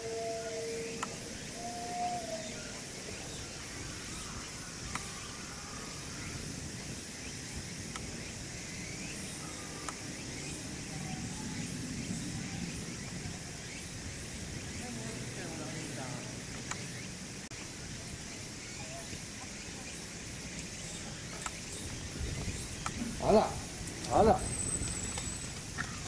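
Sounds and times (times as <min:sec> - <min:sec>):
steady high hiss: 0:00.0 - 0:26.0
faint sharp clicks: 0:01.0 - 0:01.2, 0:16.5 - 0:16.9, 0:21.3 - 0:21.6.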